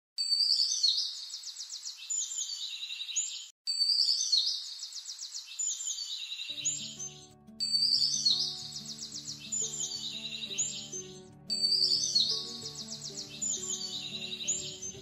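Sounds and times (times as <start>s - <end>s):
birds chirping and trilling: 0.2s - 15.0s
low music notes: 6.7s - 15.0s.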